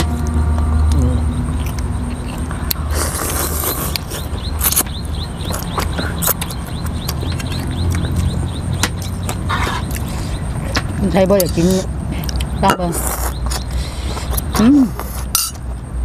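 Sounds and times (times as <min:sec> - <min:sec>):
chewing smacks: 0:01.6 - 0:11.6.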